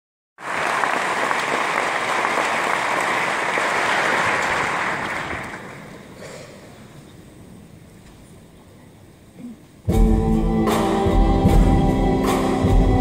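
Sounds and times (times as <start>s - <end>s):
audience applauding: 0.4s - 6.2s.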